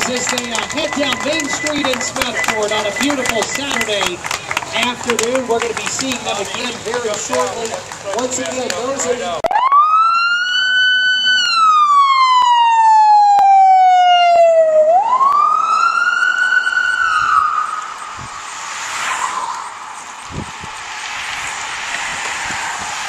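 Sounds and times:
emergency siren wailing: 0:00.0 - 0:04.6, 0:09.4 - 0:18.5
steady rushing noise: 0:00.0 - 0:08.5, 0:17.2 - 0:23.0.

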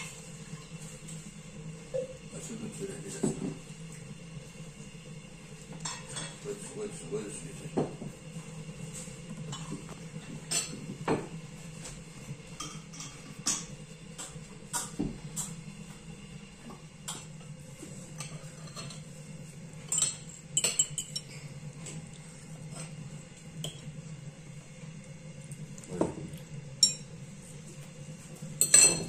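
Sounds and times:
cutlery clinking on plates and glasses: 0:05.8 - 0:06.5, 0:18.1 - 0:19.1, 0:19.8 - 0:21.5, 0:28.6 - 0:29.0.

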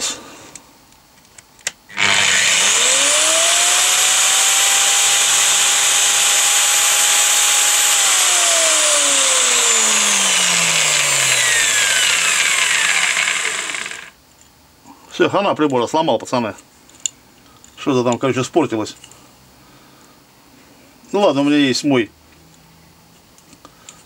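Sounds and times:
angle grinder whining: 0:01.9 - 0:14.2.

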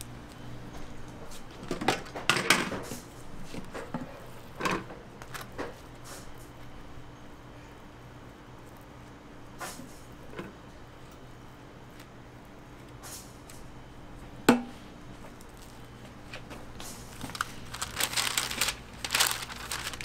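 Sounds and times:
paper wrappers crinkling: 0:15.3 - 0:20.0.

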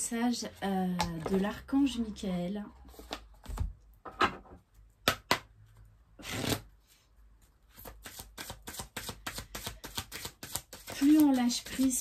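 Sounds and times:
cards being shuffled: 0:06.2 - 0:06.7, 0:07.7 - 0:11.9.

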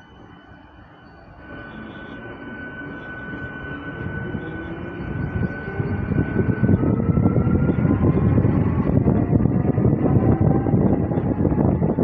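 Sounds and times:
electric train whine: 0:00.0 - 0:12.0
wheels rumbling on rails: 0:00.0 - 0:12.0
wind: 0:00.0 - 0:12.0.

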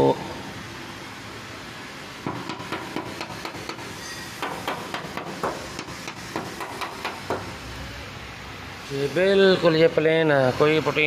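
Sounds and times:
hand knocking on steel panel: 0:02.3 - 0:03.8, 0:04.4 - 0:07.5.

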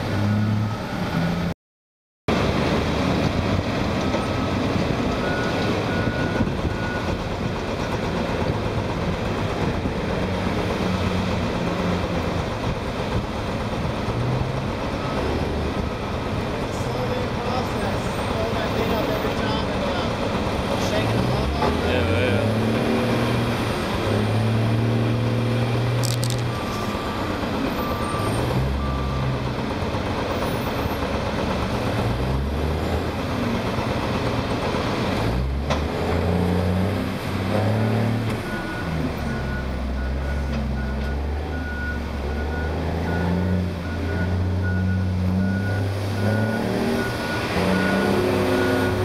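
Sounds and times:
diesel truck engine revving: 0:02.3 - 0:49.0
reversing alarm beeping: 0:26.0 - 0:29.4, 0:38.4 - 0:49.0.

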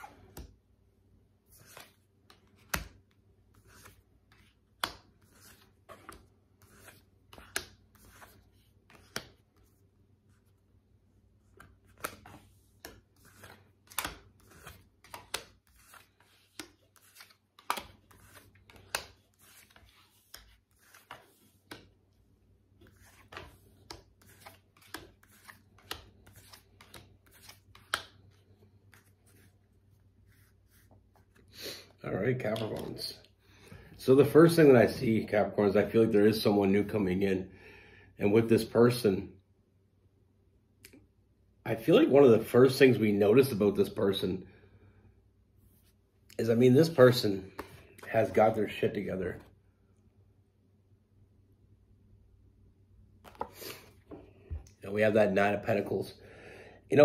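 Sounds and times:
cards being shuffled: 0:01.5 - 0:10.6, 0:11.4 - 0:22.0, 0:22.7 - 0:31.5, 0:32.3 - 0:33.1, 0:53.2 - 0:54.8.

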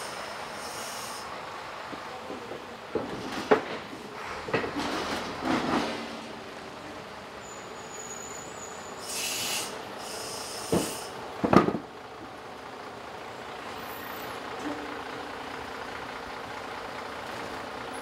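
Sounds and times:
air brake hisses: 0:00.0 - 0:01.3, 0:07.6 - 0:11.2
high brake squeal: 0:00.0 - 0:01.3, 0:07.4 - 0:11.1.

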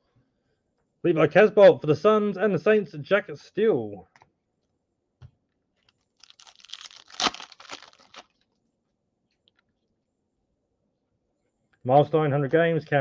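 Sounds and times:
foil wrapper tearing and crinkling: 0:06.2 - 0:08.4.

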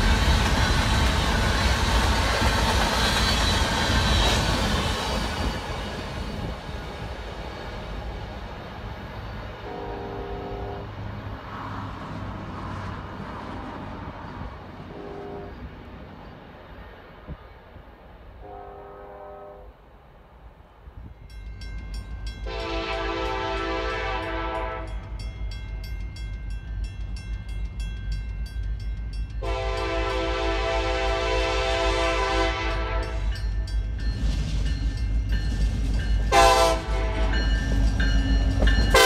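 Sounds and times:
diesel locomotive rumble: 0:00.0 - 0:18.7, 0:21.8 - 0:39.0
multi-note locomotive horn: 0:09.6 - 0:11.0, 0:14.8 - 0:15.7, 0:18.4 - 0:19.8, 0:22.4 - 0:25.1, 0:29.4 - 0:33.4, 0:36.3 - 0:37.6
distant train horn blasts: 0:09.6 - 0:11.2, 0:14.8 - 0:15.9, 0:18.4 - 0:19.8, 0:22.4 - 0:25.2, 0:29.4 - 0:33.4, 0:36.3 - 0:37.8, 0:38.4 - 0:39.0.

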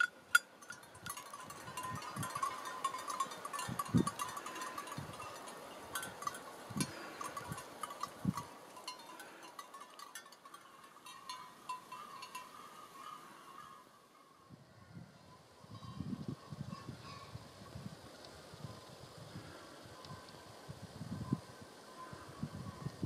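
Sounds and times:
sheep bells clanking: 0:00.0 - 0:13.8.

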